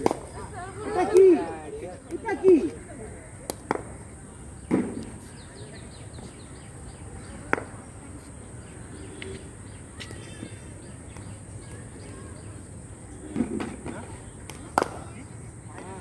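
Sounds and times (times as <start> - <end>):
birds chirping: 4.1 - 16.0.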